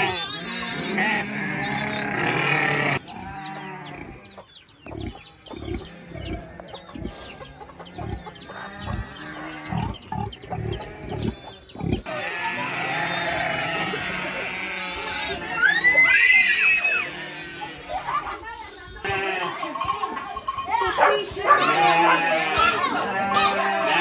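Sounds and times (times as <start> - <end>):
pig grunting: 0.0 - 15.5
hens clucking: 0.0 - 24.0.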